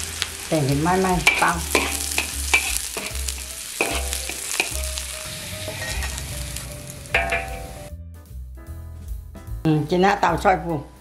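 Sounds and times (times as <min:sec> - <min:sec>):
food sizzling in a pan: 0:00.0 - 0:07.9
utensil knocking against pan: 0:03.8 - 0:04.8.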